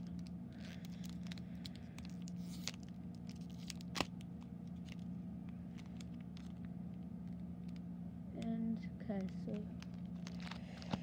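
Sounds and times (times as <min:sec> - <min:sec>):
cards and wrapper crinkling: 0:00.0 - 0:06.7, 0:09.1 - 0:11.0
steady low hum: 0:00.0 - 0:11.0.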